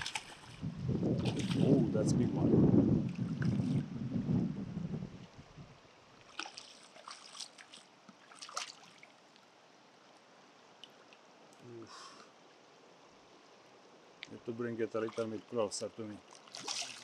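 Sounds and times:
light water splashes: 0.0s - 2.0s, 3.0s - 3.9s, 6.0s - 17.0s
river water sloshing: 0.0s - 2.0s, 3.0s - 3.9s, 5.2s - 11.6s, 12.2s - 17.0s
wind on microphone: 0.0s - 5.8s.

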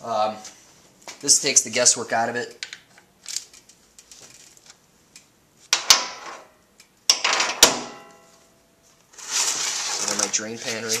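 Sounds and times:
metal clank: 7.1s - 8.4s.

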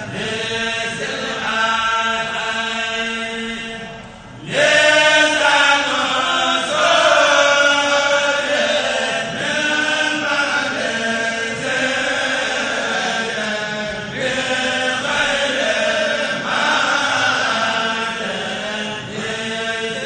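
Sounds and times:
men's choir chanting through loudspeakers: 0.0s - 20.0s.

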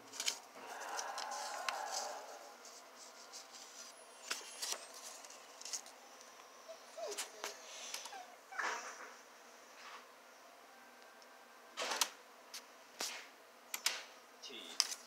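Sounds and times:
paper rustling and sliding: 0.0s - 5.9s.

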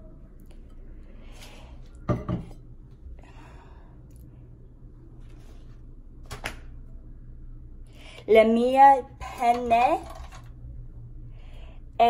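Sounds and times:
low steady hum: 0.0s - 12.0s
soft breath: 3.0s - 4.6s.

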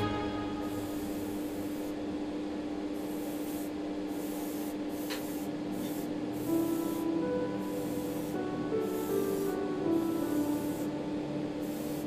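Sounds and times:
airbrush hissing: 0.0s - 2.0s, 2.9s - 12.0s
soft background music: 0.0s - 2.8s, 5.8s - 12.0s.

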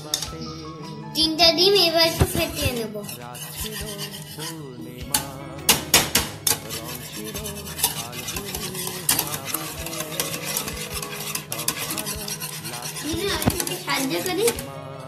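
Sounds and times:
whisk beating eggs in a bowl: 2.2s - 5.3s, 6.2s - 14.7s.

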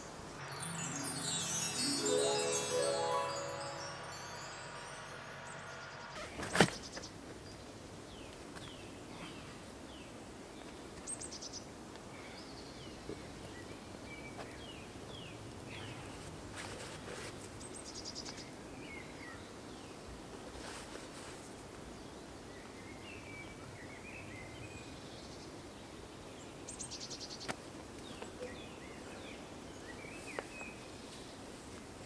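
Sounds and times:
songbirds chirping: 0.0s - 32.0s.

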